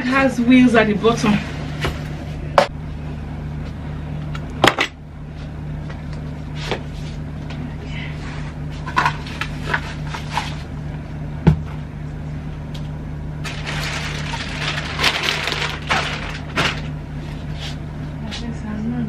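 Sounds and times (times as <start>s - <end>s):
steady low hum: 0.0s - 19.0s
crinkly rustling: 13.4s - 16.9s.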